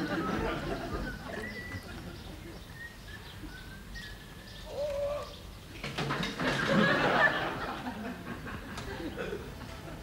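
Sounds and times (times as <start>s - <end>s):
birds calling: 0.0s - 7.5s.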